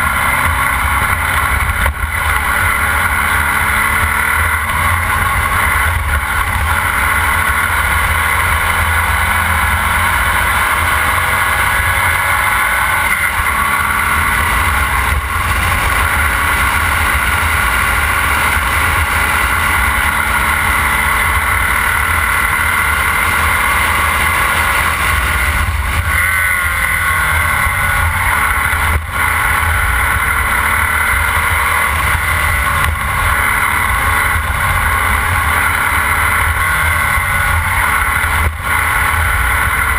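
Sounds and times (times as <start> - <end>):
race car engine running hard: 0.0 - 39.9.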